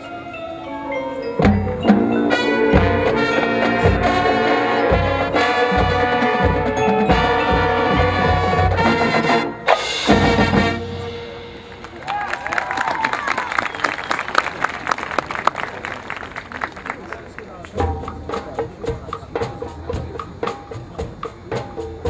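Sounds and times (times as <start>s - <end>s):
marching band brass chords: 1.3s - 12.6s.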